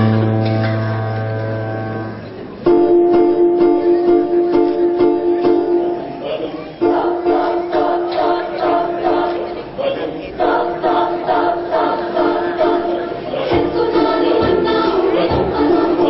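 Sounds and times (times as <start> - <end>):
strummed guitar-like accompaniment: 0.0 - 6.2
youth choir singing: 4.9 - 16.0.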